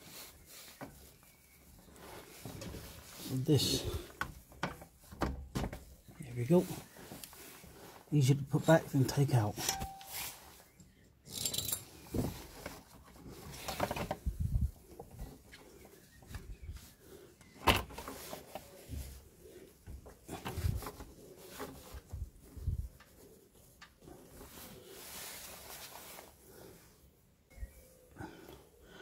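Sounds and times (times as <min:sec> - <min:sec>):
hose handling and rubbing: 0:00.0 - 0:27.2.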